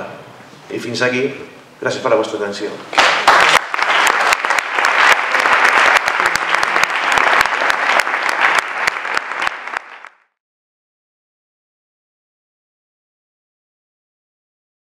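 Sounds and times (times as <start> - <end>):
audience applauding: 3.0 - 10.3.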